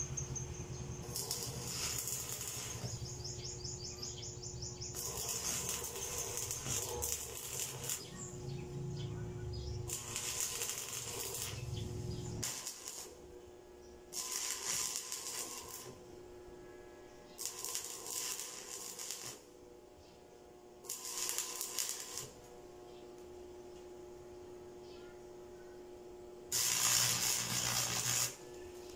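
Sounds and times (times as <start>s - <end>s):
welding arc crackling and hissing: 0.0s - 8.9s, 9.5s - 13.2s, 14.1s - 16.0s, 17.4s - 19.5s, 20.8s - 22.5s, 26.5s - 28.9s.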